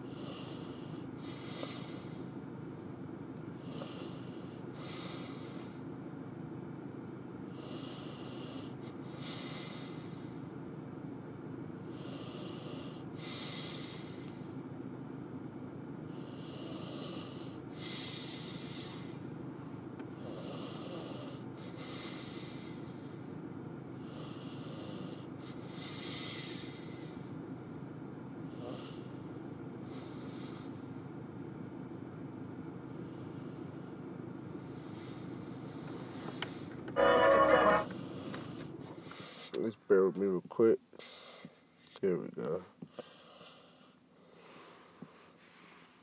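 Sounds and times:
person breathing heavily: 0.0 - 2.3, 3.6 - 5.8, 7.6 - 10.5, 11.9 - 14.5, 16.4 - 19.2, 20.2 - 23.3, 24.0 - 27.3, 29.8 - 30.9, 34.5 - 36.8, 41.0 - 41.8, 42.9 - 46.0
steady low hum: 0.0 - 46.0.

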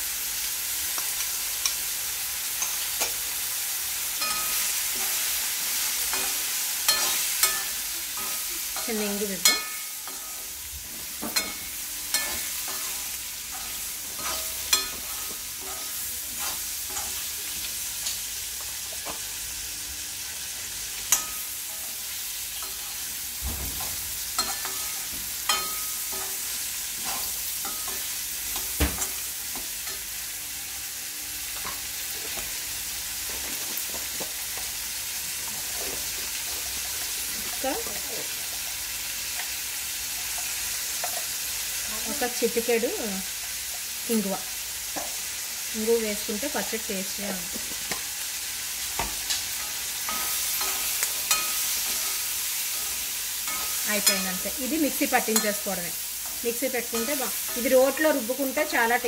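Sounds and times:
food sizzling in oil: 0.0 - 59.0
spoon clinking and scraping pan: 4.2 - 10.5, 11.2 - 18.2, 21.0 - 23.2, 23.9 - 30.8, 40.3 - 41.4, 49.0 - 58.9.

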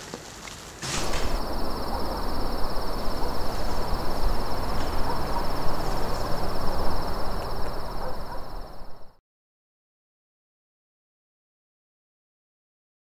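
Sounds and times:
even hiss: 0.7 - 9.1
high-pitched whine: 1.0 - 9.2
low rumble: 1.0 - 9.2.

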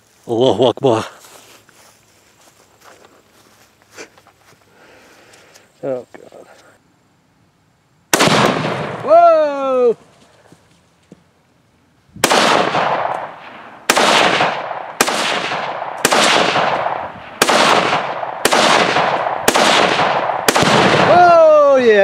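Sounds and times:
rifle shots echoing: 8.1 - 9.3, 12.2 - 21.5.

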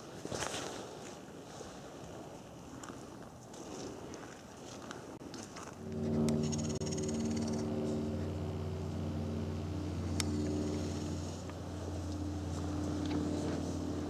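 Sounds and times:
low engine-like drone: 5.0 - 14.0.

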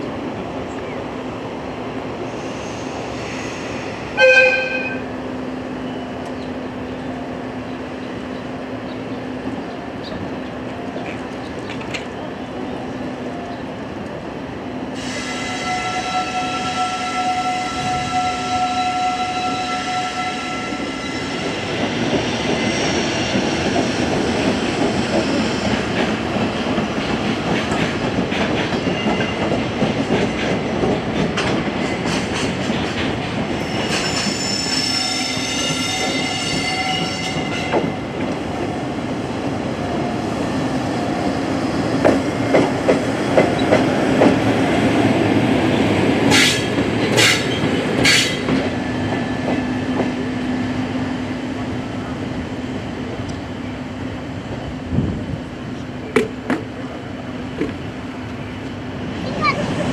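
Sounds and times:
train horn blast: 4.2 - 5.1, 15.1 - 21.4
train wheels rumbling and clattering: 6.2 - 59.9.

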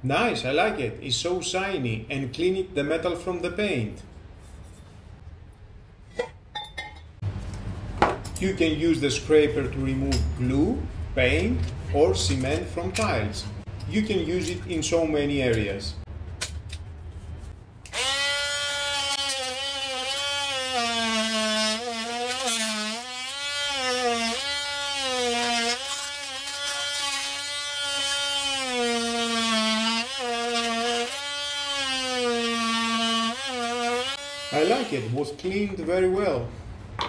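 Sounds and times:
oscillating multi-tool buzzing: 17.9 - 35.0.

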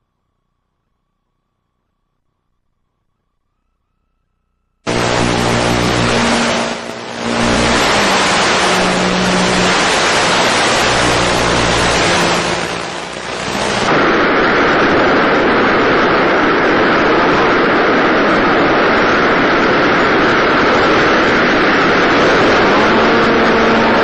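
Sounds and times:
model plane motor hum: 4.9 - 13.8
rushing wind noise: 4.9 - 24.0.

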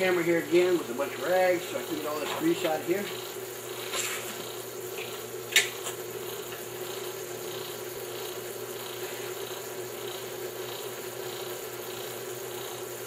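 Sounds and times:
electric motor humming: 0.0 - 13.0
rhythmic swish of turning wheel: 0.0 - 13.0
sharp click: 5.5 - 6.0.

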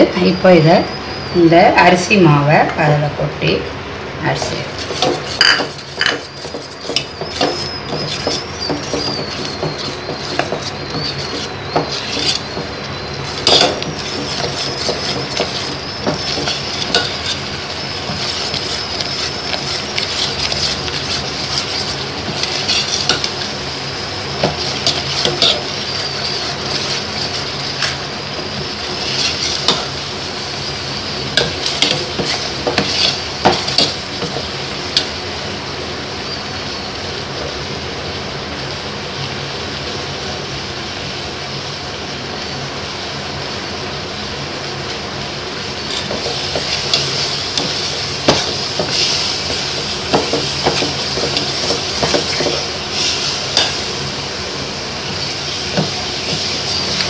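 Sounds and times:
steady hiss: 3.8 - 57.0
ladle scraping and knocking pot: 4.4 - 23.5, 24.4 - 30.0, 31.4 - 35.1, 45.9 - 53.8.

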